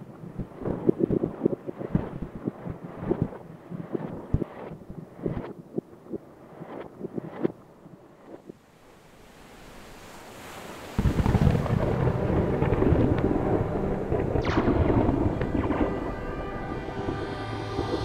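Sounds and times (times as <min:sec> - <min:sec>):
dense rumbling roar with crackles: 0:11.0 - 0:18.0
held musical tones: 0:12.6 - 0:18.0.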